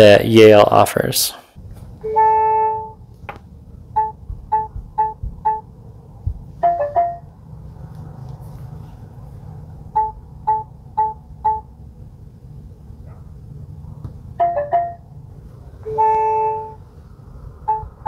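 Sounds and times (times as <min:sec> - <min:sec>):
long buzzy tone: 0:02.0 - 0:03.1
keypad beeps: 0:04.0 - 0:05.7, 0:10.0 - 0:11.6.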